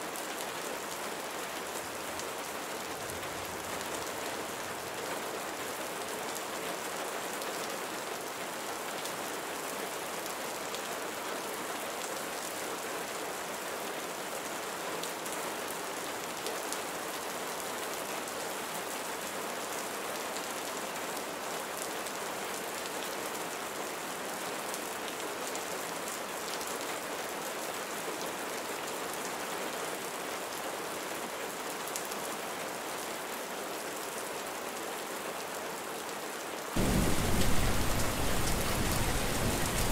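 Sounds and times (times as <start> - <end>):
steady rain hiss: 0.0 - 31.6, 36.5 - 39.9
raindrop ticks: 36.8 - 39.9.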